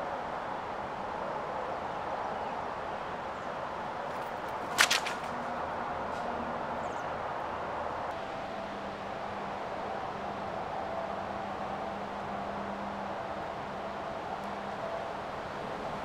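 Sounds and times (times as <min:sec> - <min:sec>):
outdoor background hiss: 0:00.0 - 0:16.0
sharp crack: 0:04.2 - 0:05.4.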